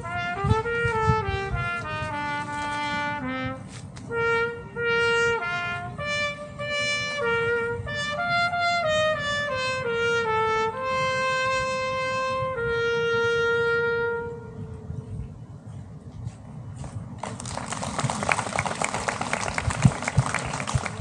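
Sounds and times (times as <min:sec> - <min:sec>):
solo trumpet melody: 0:00.0 - 0:15.1.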